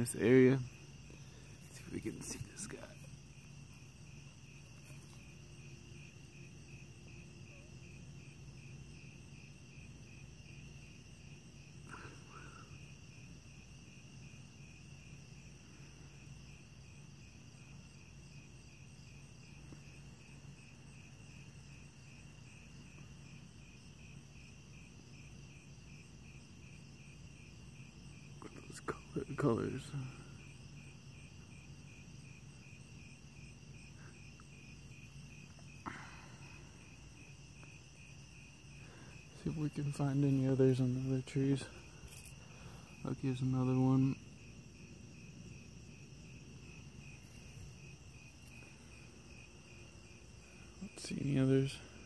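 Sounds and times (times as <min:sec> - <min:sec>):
high insect trilling: 0:00.0 - 0:15.6, 0:16.2 - 0:52.0
faint low hum: 0:00.0 - 0:52.0
pulsing insect chirping: 0:00.0 - 0:52.0.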